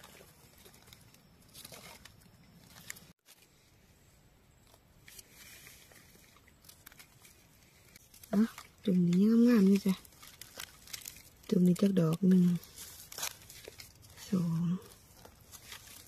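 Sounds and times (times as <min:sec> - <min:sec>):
faint rustling: 0:04.6 - 0:16.0.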